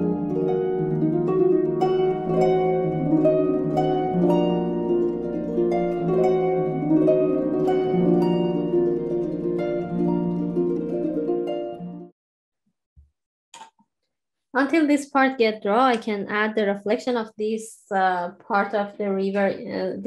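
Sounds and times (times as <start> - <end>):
plucked notes over held chords: 0.0 - 12.1.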